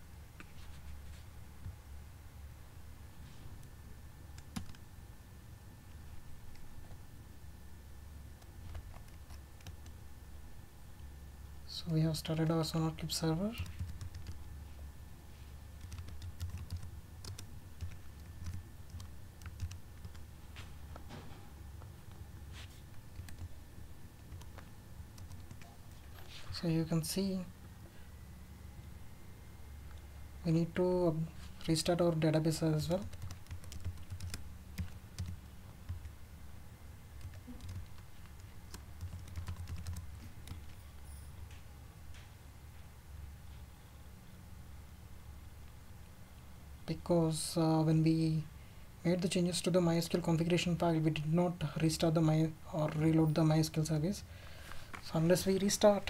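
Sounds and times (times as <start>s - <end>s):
low steady hum: 0.0s - 56.0s
computer keyboard typing: 4.3s - 4.8s, 8.4s - 10.0s, 13.5s - 14.5s, 15.8s - 20.3s, 23.1s - 23.6s, 24.2s - 25.8s, 33.0s - 36.1s, 37.2s - 40.8s.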